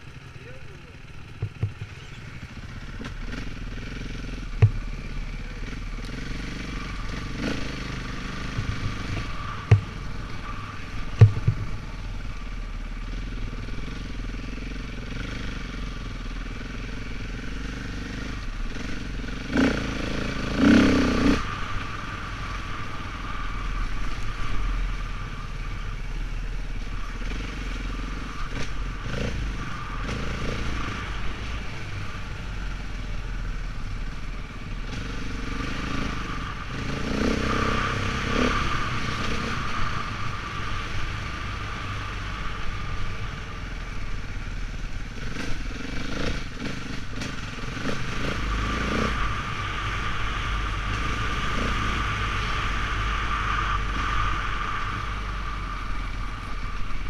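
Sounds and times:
off-road vehicle engine: 0.0 - 57.0
knocks and rattles from bumps: 1.3 - 2.3.

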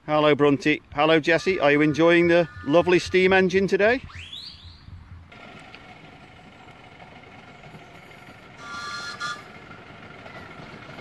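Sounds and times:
steam locomotive whistle toot: 8.5 - 10.5.

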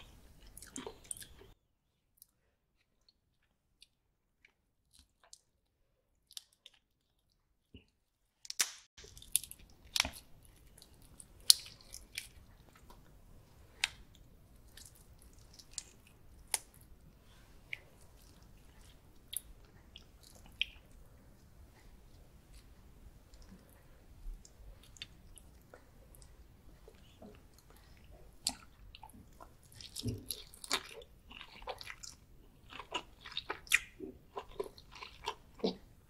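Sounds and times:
chewing with wet mouth clicks: 0.4 - 1.6, 6.2 - 7.3, 9.0 - 13.1, 13.7 - 16.9, 17.7 - 21.5, 22.1 - 35.8.

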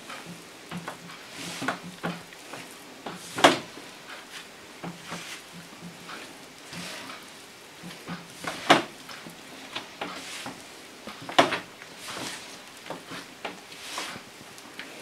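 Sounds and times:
hands kneading dough: 0.1 - 14.6.

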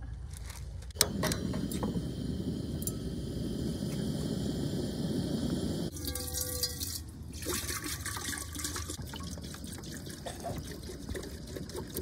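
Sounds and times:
water pouring into kettle: 5.9 - 12.0.

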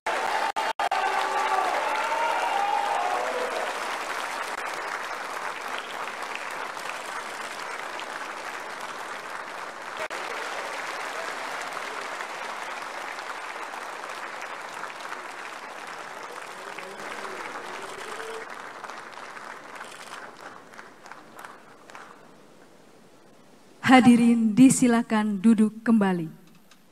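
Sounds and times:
audience applauding: 0.0 - 23.3.

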